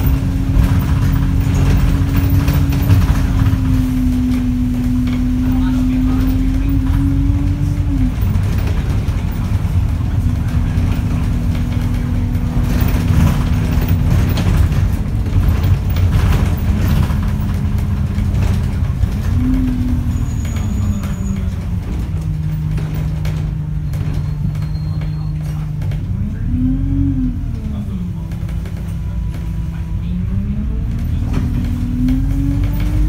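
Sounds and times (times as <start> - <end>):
body rattles: 0.0 - 26.1
bus engine drone: 0.0 - 33.0
road rumble: 0.0 - 33.0.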